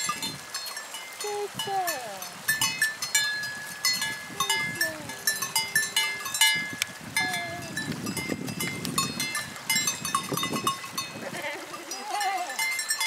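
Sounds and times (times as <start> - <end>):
goat bells clinking: 0.0 - 13.0
goat bleat: 11.2 - 12.6.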